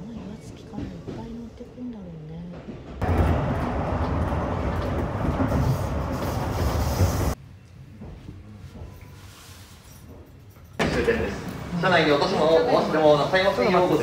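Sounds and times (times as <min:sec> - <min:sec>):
train wheels rumbling on rail: 0:00.0 - 0:14.0.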